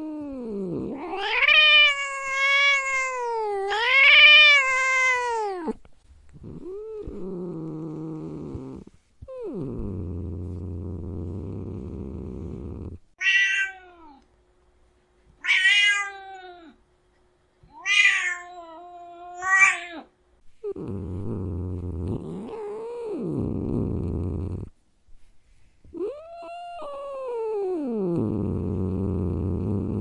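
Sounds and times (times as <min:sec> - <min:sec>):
cat purring: 0:00.0 - 0:13.2, 0:20.6 - 0:24.8, 0:25.9 - 0:30.0
cat meowing: 0:01.0 - 0:05.8, 0:13.2 - 0:14.2, 0:15.4 - 0:16.8, 0:17.7 - 0:20.1.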